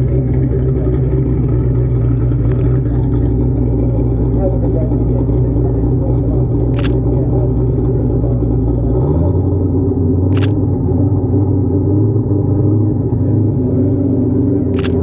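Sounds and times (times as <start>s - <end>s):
car engine idling: 0.0s - 15.0s
camera shutter clicks: 6.8s - 7.0s, 10.4s - 10.6s, 14.8s - 15.0s.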